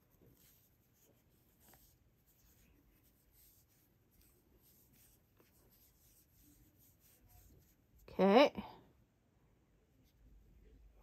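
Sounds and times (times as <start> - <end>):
yarn rustling: 0.0 - 8.2.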